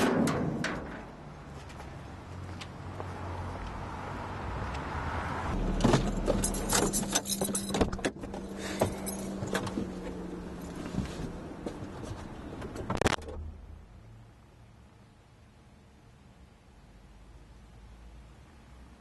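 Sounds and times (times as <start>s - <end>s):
low steady hum: 5.6s - 19.0s
keys jangling: 6.2s - 8.0s, 8.8s - 9.7s.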